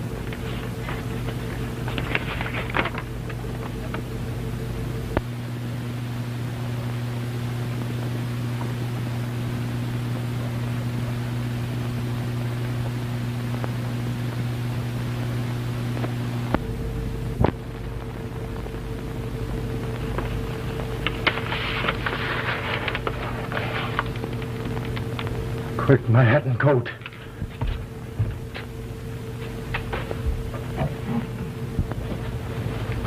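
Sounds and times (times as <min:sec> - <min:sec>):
low hum: 0:00.0 - 0:33.0.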